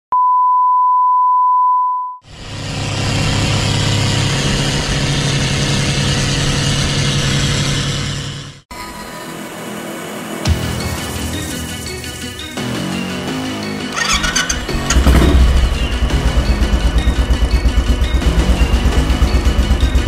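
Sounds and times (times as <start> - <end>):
steady beep: 0.1 - 2.2
boat engine running hard: 14.0 - 20.0.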